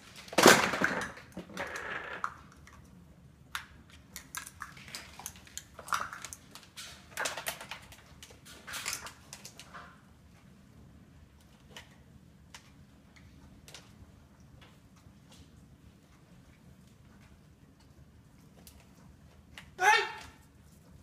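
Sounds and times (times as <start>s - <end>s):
plastic cups clattering on hard floor: 0.2s - 2.6s.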